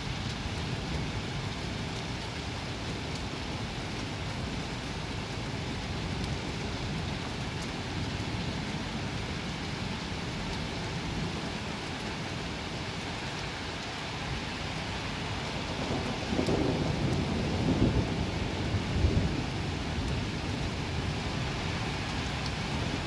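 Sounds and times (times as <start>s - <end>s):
heavy rain falling: 0.0s - 23.0s
rain drop ticks: 0.2s - 9.1s, 10.0s - 14.8s, 15.8s - 17.4s, 20.0s - 20.7s.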